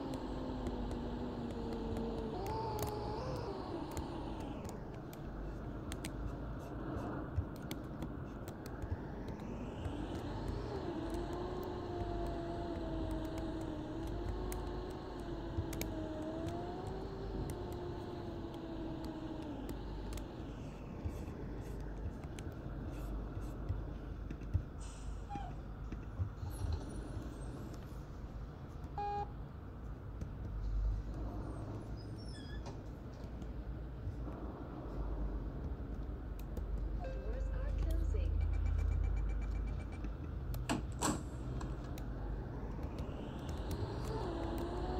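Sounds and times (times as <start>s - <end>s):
bus engine and road rumble: 0.0s - 44.9s
drivetrain whine: 0.0s - 44.9s
short beep: 37.0s - 37.3s.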